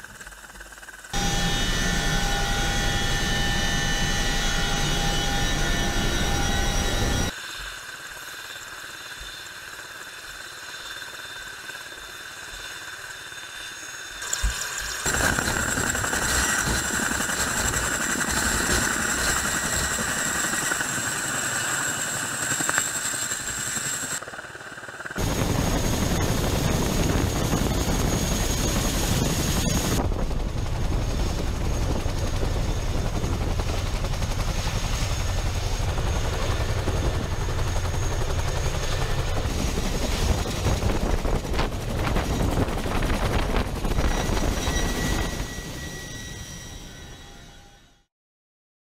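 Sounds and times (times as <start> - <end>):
helicopter rotor and engine: 0.0 - 48.1.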